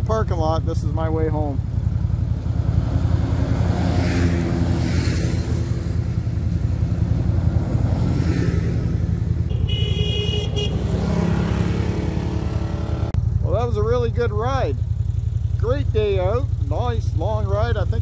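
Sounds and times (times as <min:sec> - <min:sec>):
engine idling: 0:00.0 - 0:03.1, 0:13.1 - 0:18.0
engine revving: 0:01.4 - 0:14.8
horn toot: 0:09.5 - 0:11.4.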